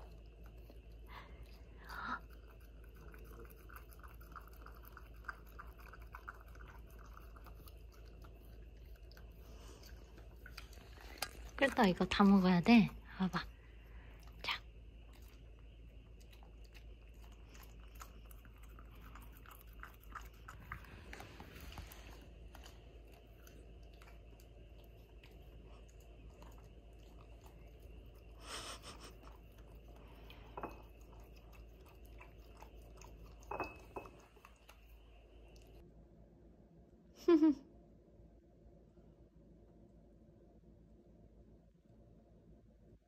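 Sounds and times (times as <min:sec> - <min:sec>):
dog crunching food: 0:02.4 - 0:12.3, 0:15.0 - 0:28.4.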